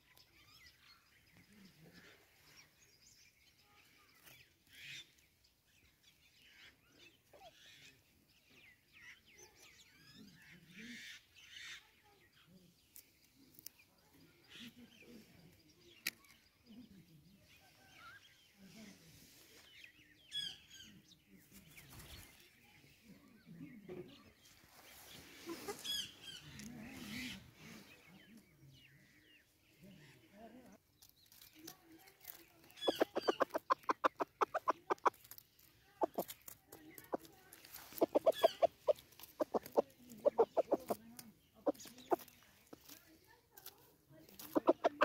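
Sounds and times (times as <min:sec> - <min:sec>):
chickens clucking softly: 0:23.1 - 0:28.4, 0:32.6 - 0:43.0, 0:43.6 - 0:45.0
high-pitched chirping: 0:32.8 - 0:35.0, 0:38.0 - 0:41.0.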